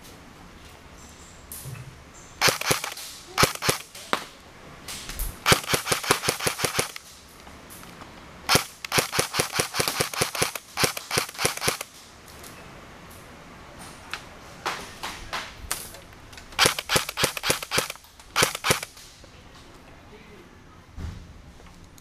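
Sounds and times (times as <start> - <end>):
airsoft guns firing bursts: 2.4 - 4.0, 5.4 - 7.1, 8.5 - 11.9, 16.6 - 19.0.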